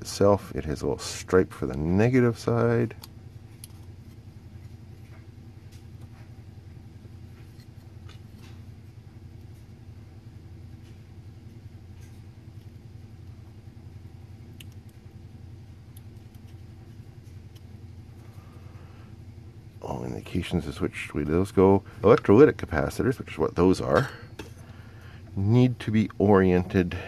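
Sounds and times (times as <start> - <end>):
steady low hum: 0.0 - 27.0
faint clicks and ticks: 14.3 - 18.3.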